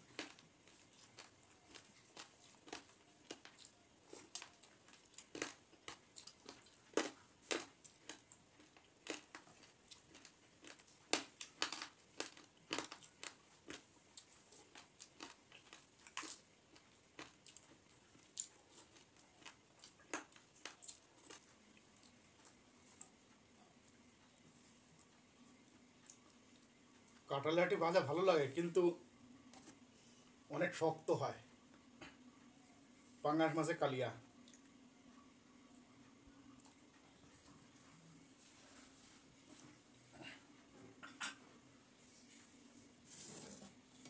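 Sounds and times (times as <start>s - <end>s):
chewing and crunching: 0.0s - 27.3s.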